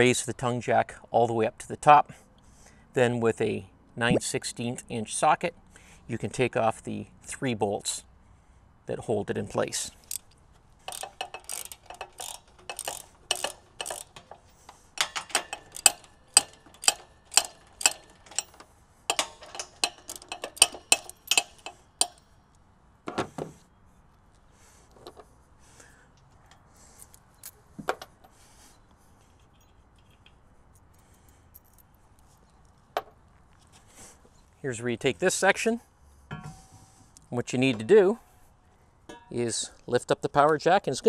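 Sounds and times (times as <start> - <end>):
ratchet wrench clicking: 10.0 - 22.2.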